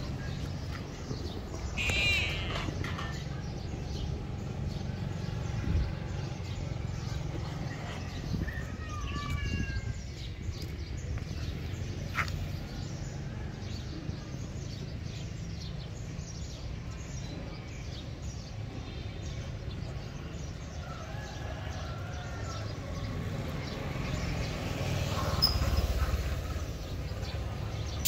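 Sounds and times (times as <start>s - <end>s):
small birds chirping: 0.0s - 20.9s, 21.8s - 28.0s.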